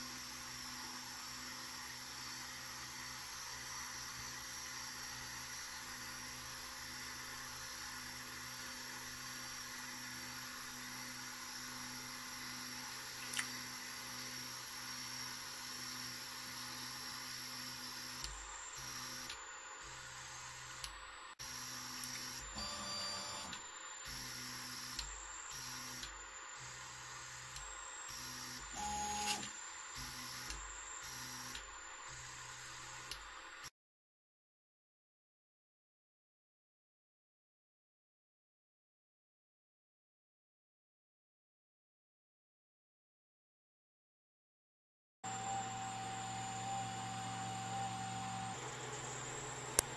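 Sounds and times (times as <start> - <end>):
printer fan whir: 13.9 - 33.4, 45.3 - 49.9
stepper motors humming: 45.3 - 49.9.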